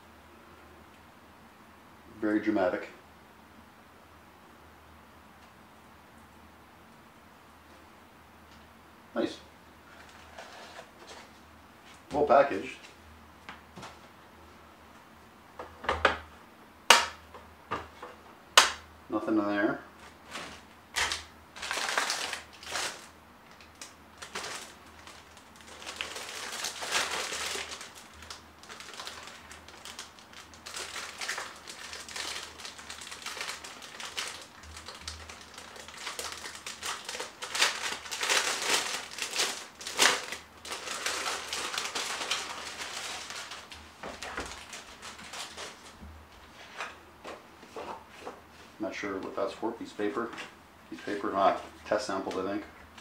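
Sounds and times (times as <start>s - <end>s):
paper and plastic packaging rustling: 9.8s - 12.1s, 20.0s - 48.4s.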